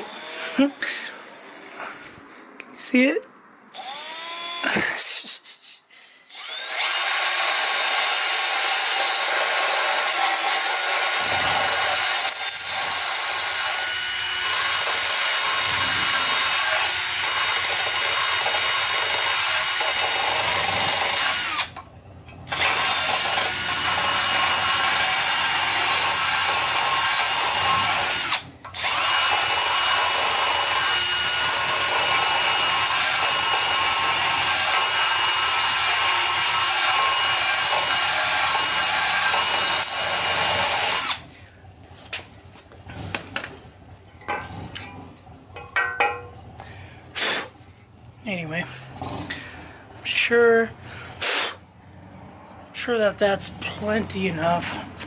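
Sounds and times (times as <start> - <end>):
drill grinding metal: 0.0 - 2.1, 3.8 - 4.8, 6.3 - 21.8, 22.5 - 41.2.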